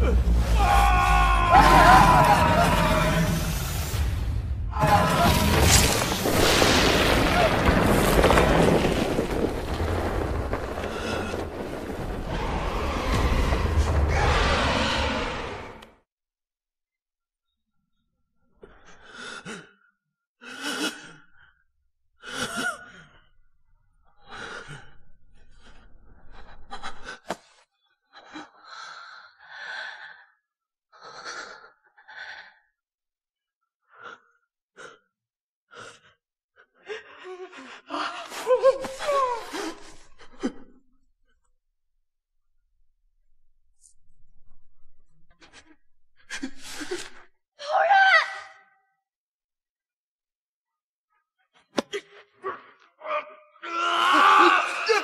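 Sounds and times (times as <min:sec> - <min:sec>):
wavering pained cry: 0:00.6 - 0:03.5.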